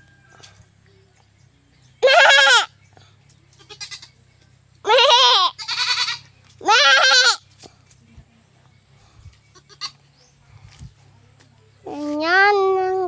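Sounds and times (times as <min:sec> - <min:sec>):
goat bleating: 0:02.0 - 0:02.7, 0:03.6 - 0:04.2, 0:04.9 - 0:07.5, 0:09.5 - 0:10.0.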